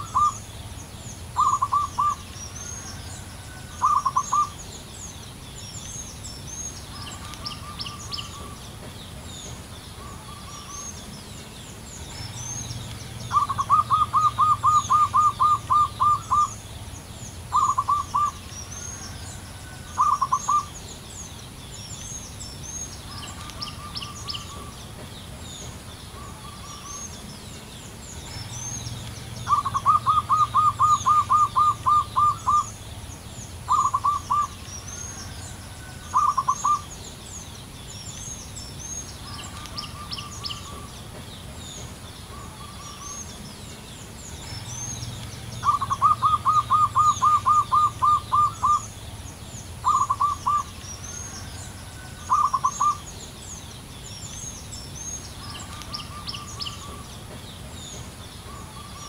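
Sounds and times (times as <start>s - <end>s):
dove cooing: 0.0s - 0.4s, 1.4s - 4.6s, 13.2s - 16.6s, 17.5s - 18.4s, 19.0s - 20.7s, 29.4s - 32.8s, 33.7s - 34.6s, 35.2s - 36.9s, 45.6s - 48.9s, 49.8s - 50.7s, 51.3s - 53.0s
small birds chirping: 0.0s - 59.0s.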